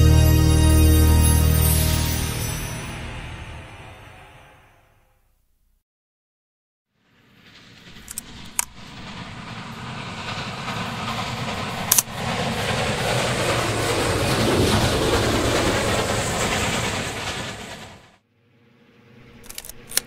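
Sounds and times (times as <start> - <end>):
train rumble and rail noise: 7.0 - 18.2, 19.2 - 20.0
sharp clicks: 19.4 - 20.0.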